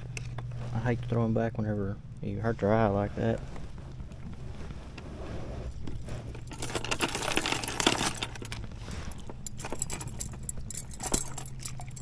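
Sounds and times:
metal chain jangling: 0:06.3 - 0:12.0.

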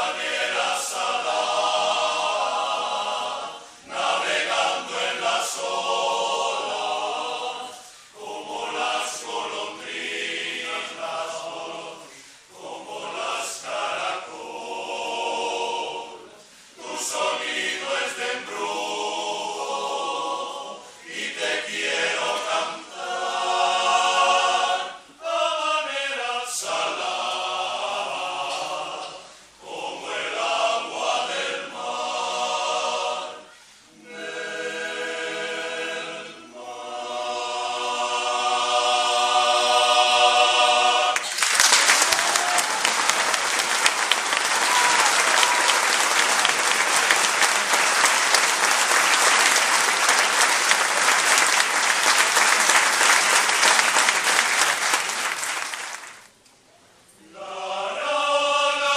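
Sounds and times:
male choir singing a cappella: 0:00.0 - 0:41.2, 0:57.2 - 0:58.9.

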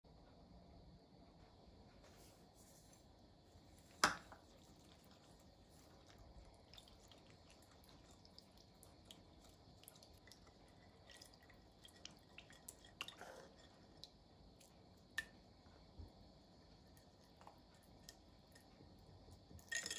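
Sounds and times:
mayonnaise squishing: 0:04.4 - 0:14.0.

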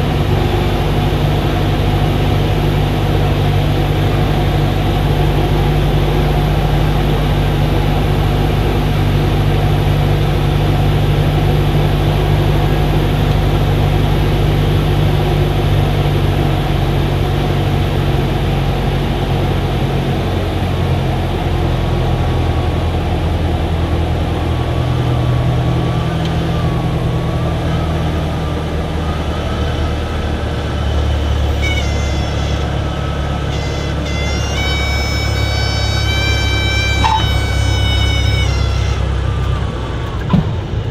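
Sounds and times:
airplane engine and propeller droning: 0:00.0 - 0:40.9
high reedy warning horn: 0:30.3 - 0:40.0.

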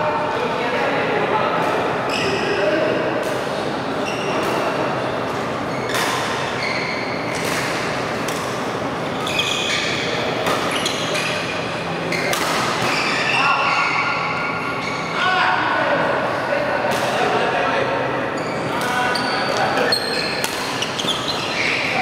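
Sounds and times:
shoes squeaking on court: 0:04.0 - 0:15.2, 0:18.4 - 0:22.0
racket hitting shuttlecock: 0:07.3 - 0:08.7, 0:12.2 - 0:13.0, 0:20.4 - 0:20.9.

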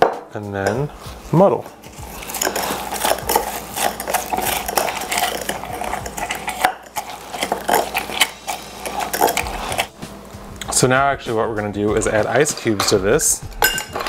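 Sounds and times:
metal muddler clinking against glass: 0:13.6 - 0:14.0.

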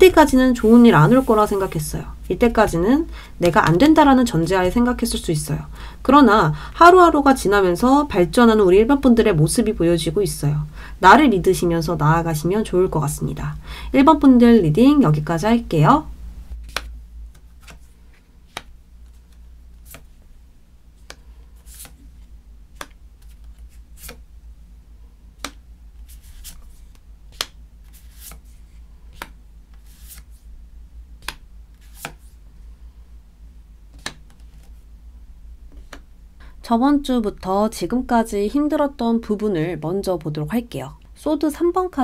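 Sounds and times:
low steady hum: 0:00.0 - 0:42.0
cards tapping on a table: 0:25.4 - 0:25.6.

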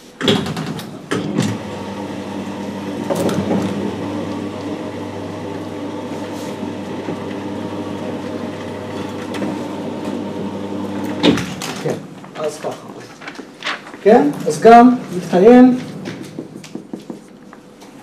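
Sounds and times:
sliding panels humming and rumbling: 0:00.5 - 0:17.0
knocks: 0:16.0 - 0:17.3.

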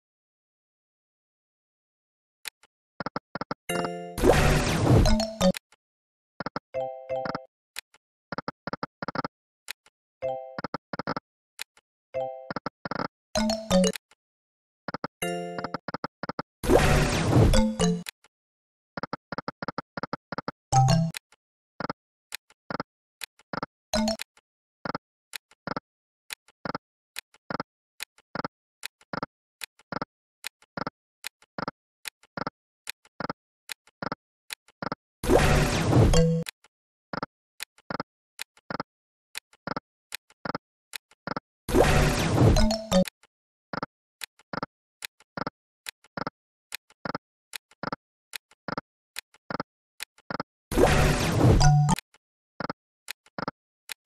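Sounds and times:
electronic slot game clicks: 0:03.0 - 0:05.6, 0:06.4 - 0:07.5, 0:12.2 - 0:14.0, 0:14.9 - 0:16.4, 0:17.6 - 0:18.2, 0:19.3 - 0:21.2, 0:23.5 - 0:24.3, 0:36.1 - 0:36.6, 0:42.2 - 0:43.1, 0:50.3 - 0:52.0.

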